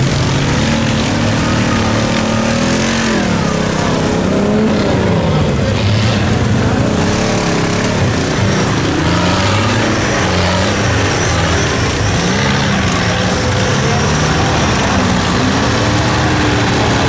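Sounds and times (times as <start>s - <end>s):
truck engines revving: 0.0s - 17.0s.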